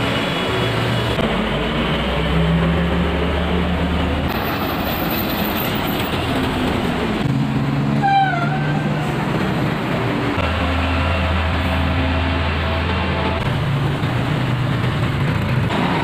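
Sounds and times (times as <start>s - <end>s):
bus engines driving past: 0.0s - 16.0s.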